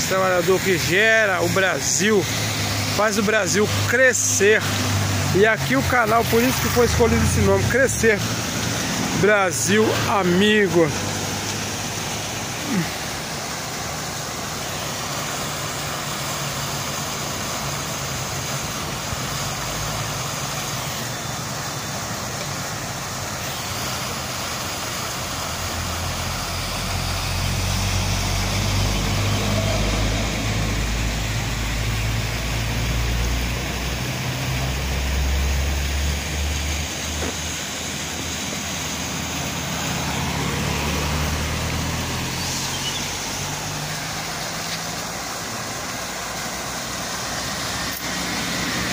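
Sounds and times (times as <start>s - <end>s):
truck diesel engine passing: 0.0s - 14.4s, 25.3s - 48.9s
road traffic passing: 0.0s - 48.9s.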